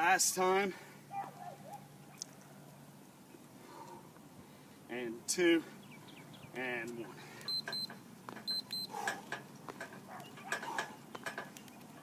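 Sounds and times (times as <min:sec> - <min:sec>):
interval timer beeping: 0:07.5 - 0:08.9.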